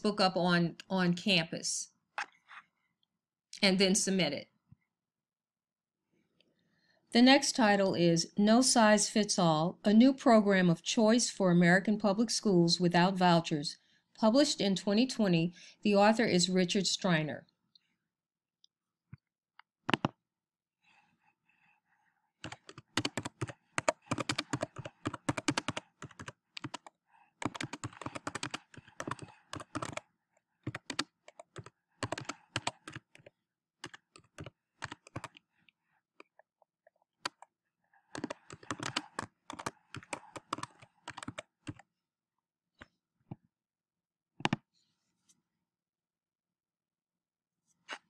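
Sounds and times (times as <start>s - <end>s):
typing on computer keyboard: 22.4s - 35.4s, 38.1s - 41.8s.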